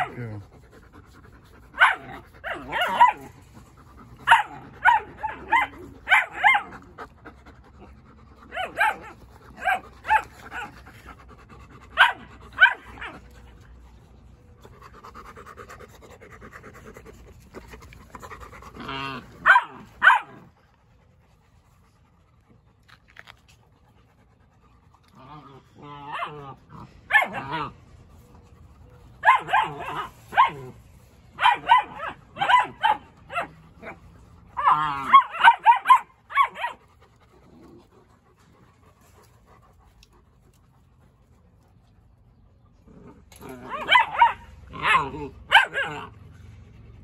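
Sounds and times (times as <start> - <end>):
dogs barking: 0.0 - 0.2, 1.7 - 7.1, 8.4 - 10.9, 11.9 - 13.3, 18.2 - 20.5, 25.8 - 27.8, 29.2 - 30.8, 31.4 - 36.9, 43.5 - 46.2
dogs panting: 0.0 - 42.8.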